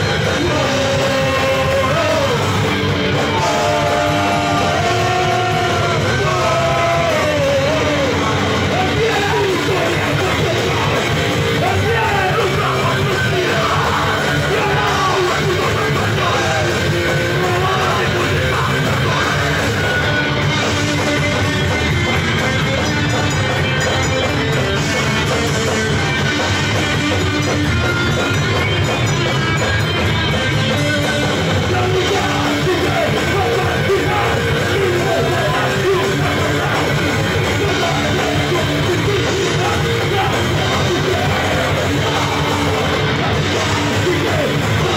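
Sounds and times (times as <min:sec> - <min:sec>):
person singing and shouting: 0:00.0 - 0:21.5, 0:30.7 - 0:44.9
rock band playing: 0:00.0 - 0:44.9.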